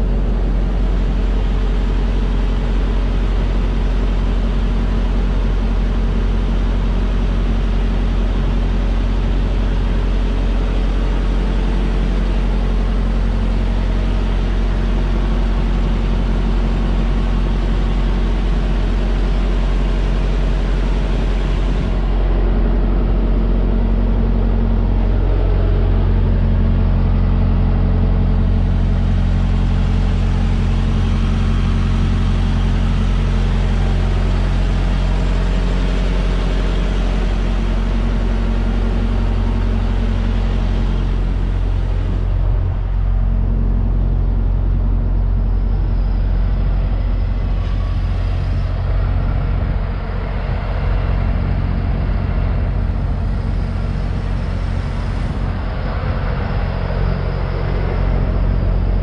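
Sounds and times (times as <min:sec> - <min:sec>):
diesel truck engine idling: 0:00.0 - 0:59.0.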